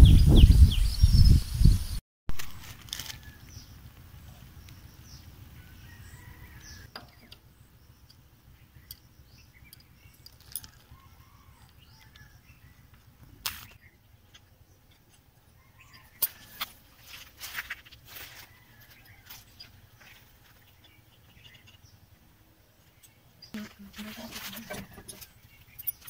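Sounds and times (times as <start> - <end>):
wind buffeting the microphone: 0.0 - 2.0.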